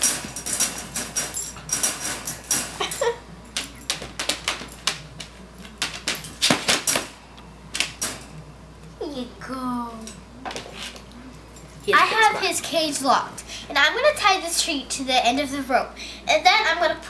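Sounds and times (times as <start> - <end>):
wire crate rattling: 0.0 - 4.9.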